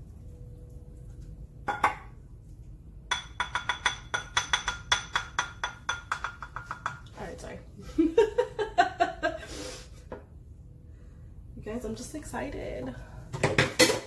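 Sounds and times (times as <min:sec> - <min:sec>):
spoon knocking on ceramic bowl: 0:01.7 - 0:02.1, 0:03.1 - 0:07.1.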